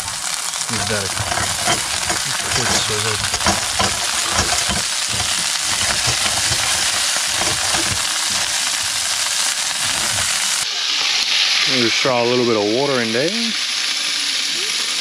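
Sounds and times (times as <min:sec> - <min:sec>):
shells scraping against metal pot: 0:00.0 - 0:10.6
crab sizzling in hot oil: 0:00.0 - 0:15.0.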